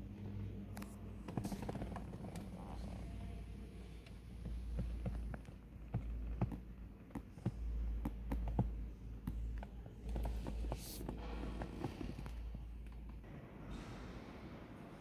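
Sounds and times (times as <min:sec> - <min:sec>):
light taps and clicks: 0:04.0 - 0:13.2.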